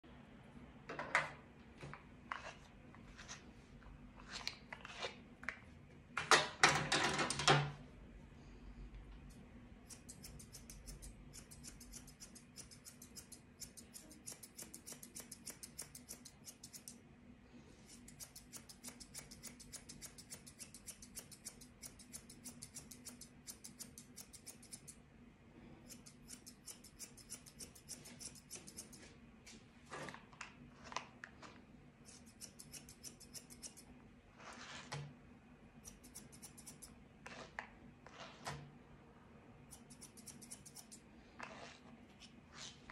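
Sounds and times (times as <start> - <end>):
scissors snipping hair: 9.2 - 17.0, 17.9 - 25.0, 25.9 - 29.0, 32.1 - 33.9, 35.9 - 37.0, 39.7 - 41.0.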